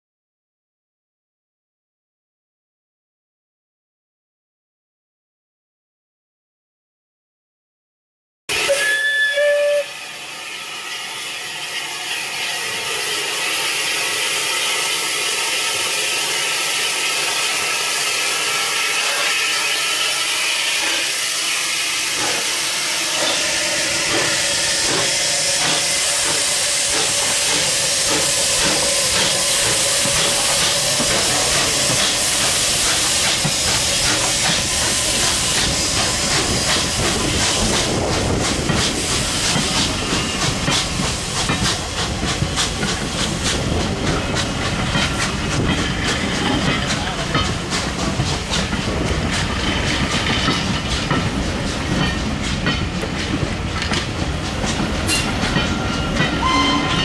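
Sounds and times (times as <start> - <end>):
steam whistle: 8.5 - 10.2, 55.1 - 57.0
steam hissing: 8.5 - 57.0
train wheels knocking on rails: 23.2 - 57.0.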